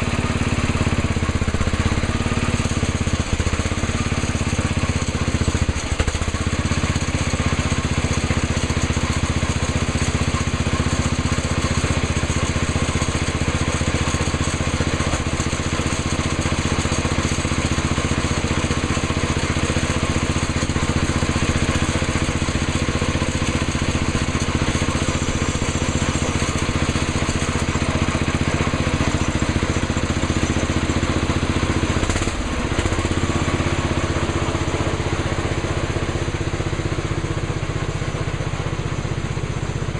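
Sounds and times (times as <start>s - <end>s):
tractor engine idling: 0.0s - 39.9s.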